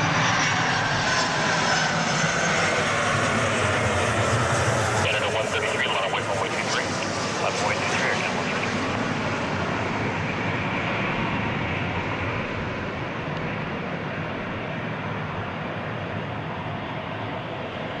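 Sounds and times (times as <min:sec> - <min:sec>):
jet engine rush: 0:00.0 - 0:18.0.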